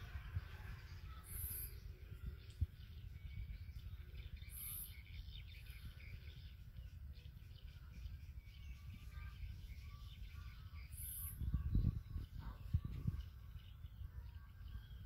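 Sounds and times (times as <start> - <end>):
thin high chirps: 4.5 - 5.0.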